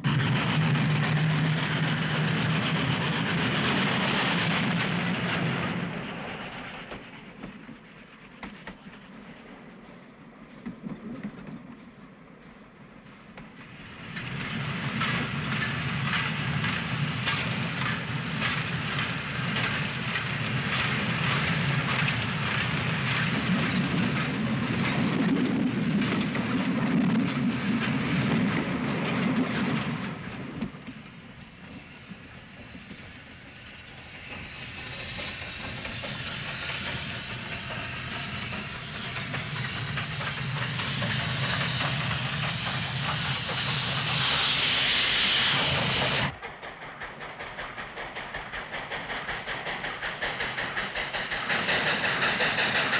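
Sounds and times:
steam locomotive hissing: 0:00.0 - 0:10.6, 0:12.1 - 0:52.9
train wheels clattering on rails: 0:00.0 - 0:52.9.

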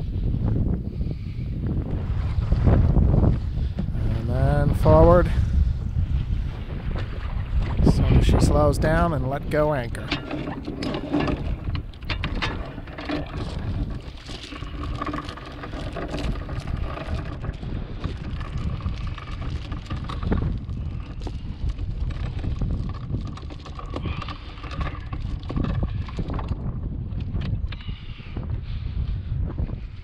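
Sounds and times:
wind buffeting microphone: 0:00.0 - 0:30.0
anchor chain rattling: 0:08.4 - 0:27.8.

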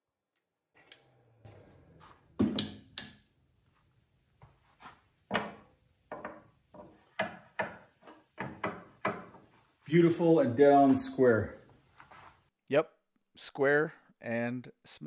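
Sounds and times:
tools knocking on wooden workbench: 0:02.4 - 0:02.8, 0:05.3 - 0:09.5.

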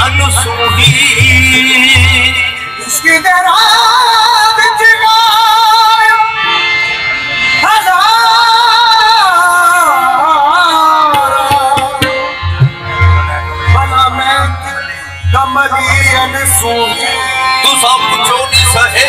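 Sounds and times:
man singing: 0:00.0 - 0:06.4, 0:07.6 - 0:19.0
harmoniums: 0:00.0 - 0:19.0
low hand-drum beats: 0:11.1 - 0:14.6.

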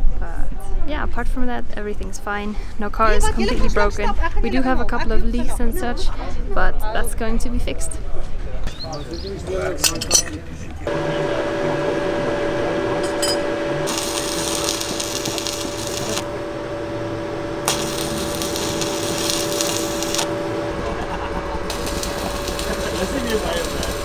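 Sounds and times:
steady hum: 0:10.8 - 0:24.0
arc welding crackling: 0:12.9 - 0:24.0.

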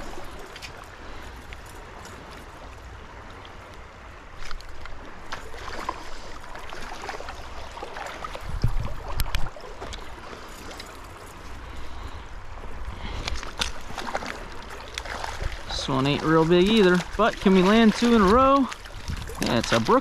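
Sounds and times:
stream water running over rocks: 0:00.0 - 0:20.0.

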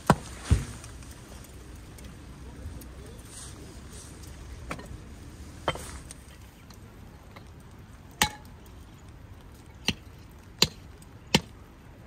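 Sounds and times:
hatchet chopping wood: 0:10.6 - 0:11.6.

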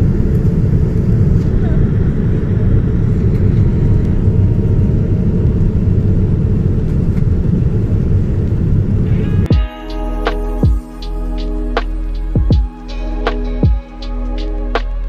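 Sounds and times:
airliner low rumble: 0:00.0 - 0:09.5
music: 0:09.4 - 0:15.0.

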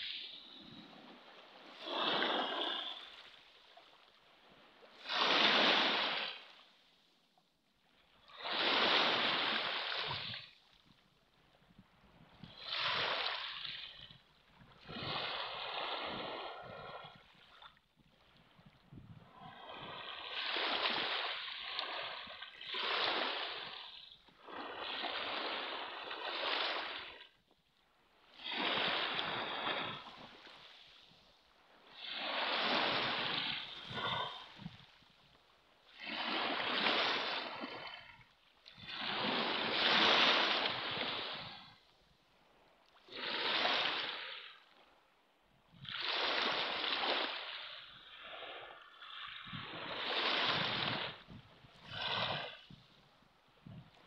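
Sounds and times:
waves washing on pebble beach: 0:00.0 - 0:03.4, 0:04.9 - 0:06.6, 0:19.2 - 0:27.2, 0:28.3 - 0:31.2, 0:31.8 - 0:34.9, 0:38.7 - 0:41.8.

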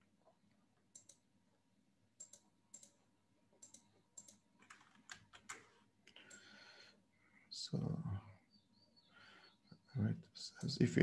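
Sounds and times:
computer keyboard clicks: 0:03.6 - 0:05.6.

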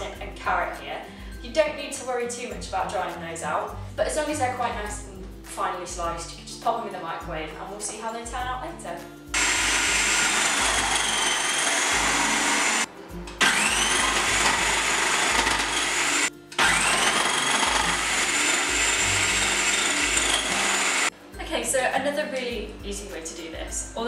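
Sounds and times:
food processor motor whirring: 0:09.4 - 0:21.1.

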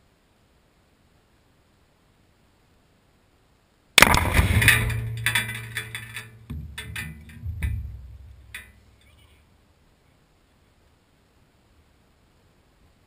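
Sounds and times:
explosion blast with rumble: 0:04.0 - 0:08.6
sharp knocks: 0:04.0 - 0:09.0.

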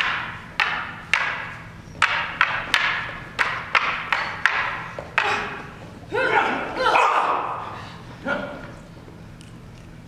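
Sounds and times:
wooden staffs clacking with echo: 0:00.0 - 0:07.7.

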